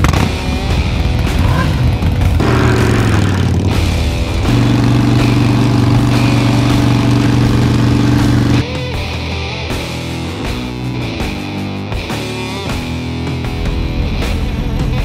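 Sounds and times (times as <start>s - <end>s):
motorcycle engine revving: 0.0s - 8.6s.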